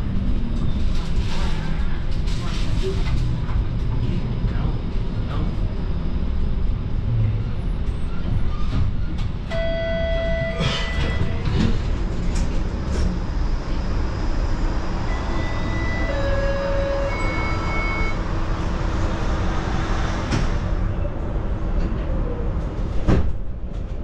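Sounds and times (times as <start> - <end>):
streetcar rumbling on track: 0.0 - 24.0
beep: 9.5 - 11.4, 15.1 - 18.2.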